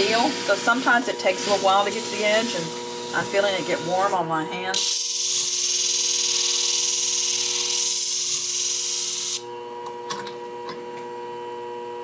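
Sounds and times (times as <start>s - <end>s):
steady machine hum: 0.0s - 12.0s
blade grinding on abrasive disc: 4.8s - 9.4s.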